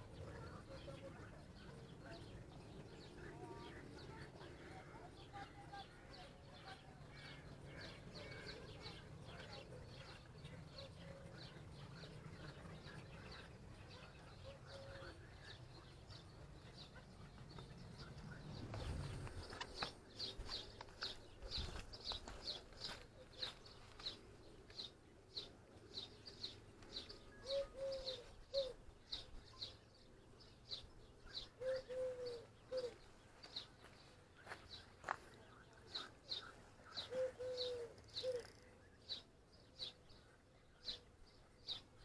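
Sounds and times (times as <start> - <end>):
songbirds chirping: 0.0 - 42.0
dove cooing: 14.0 - 15.3, 27.2 - 28.9, 31.6 - 33.1, 36.4 - 38.7.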